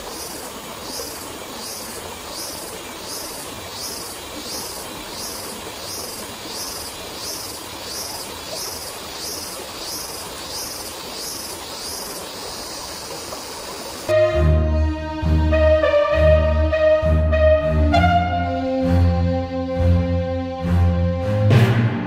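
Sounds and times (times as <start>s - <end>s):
constant hiss: 0.0s - 16.2s
loud music with brass: 14.1s - 22.0s.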